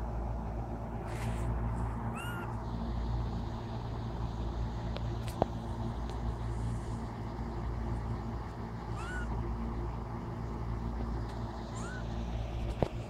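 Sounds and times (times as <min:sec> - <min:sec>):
steady low hum: 0:00.0 - 0:13.0
kitten mewing: 0:02.1 - 0:02.5, 0:08.9 - 0:09.4, 0:11.7 - 0:12.2.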